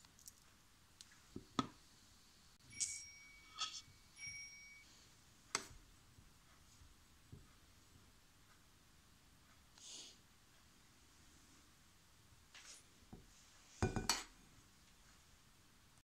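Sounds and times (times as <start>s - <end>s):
metallic clinks of steel jar: 2.7s - 4.8s.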